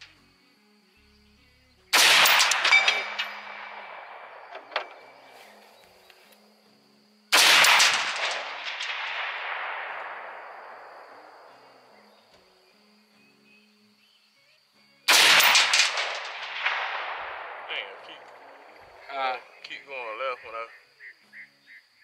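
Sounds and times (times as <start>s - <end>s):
rifle shot echoing: 1.9s - 5.3s, 7.3s - 12.0s, 15.1s - 19.1s.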